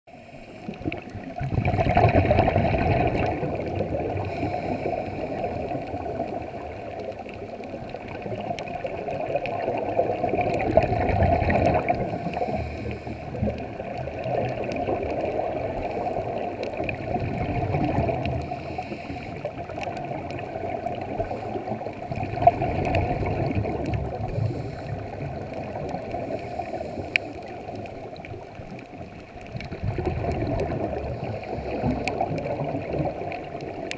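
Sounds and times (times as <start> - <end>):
scuba regulator bubbles gurgling: 0.1 - 33.9.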